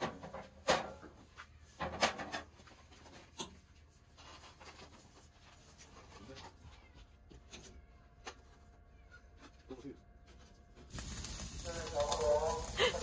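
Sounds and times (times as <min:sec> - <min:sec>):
charcoal scraping in metal starter: 0:10.8 - 0:13.0.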